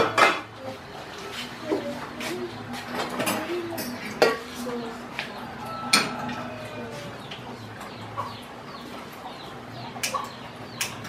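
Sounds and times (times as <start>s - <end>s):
metal cookware clattering: 0.0s - 0.6s, 5.6s - 6.5s
faint birds calling: 4.6s - 11.0s.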